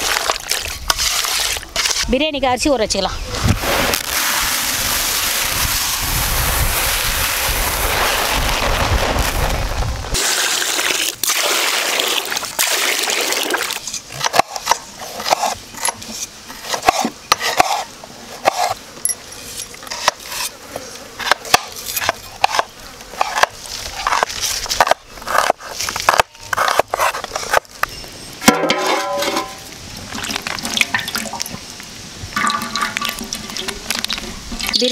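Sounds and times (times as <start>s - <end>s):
rice pouring into plastic basin: 3.6s - 13.6s.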